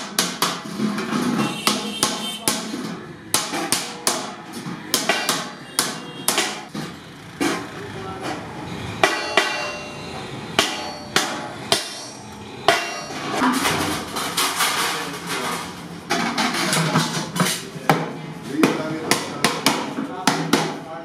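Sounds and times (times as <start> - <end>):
hammer striking sheet iron: 0.0 - 6.8, 9.0 - 14.8.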